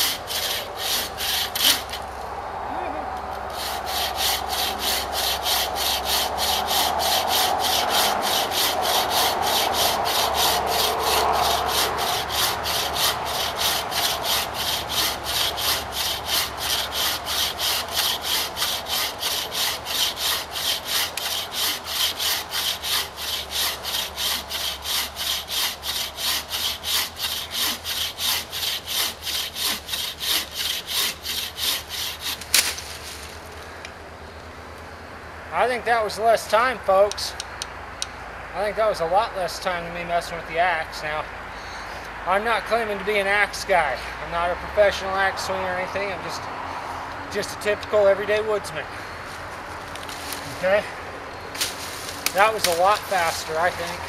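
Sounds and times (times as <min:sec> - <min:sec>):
saw cutting through log: 0:00.0 - 0:02.1, 0:03.3 - 0:32.8, 0:51.5 - 0:54.0.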